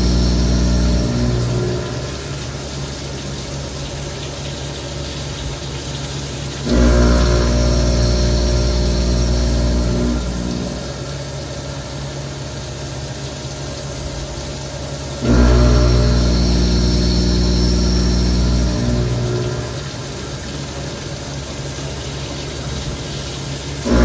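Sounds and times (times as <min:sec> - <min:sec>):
milling machine running: 0:00.0 - 0:03.1, 0:06.5 - 0:13.2, 0:14.1 - 0:21.4, 0:23.3 - 0:24.0
coolant spray hiss: 0:00.0 - 0:24.0.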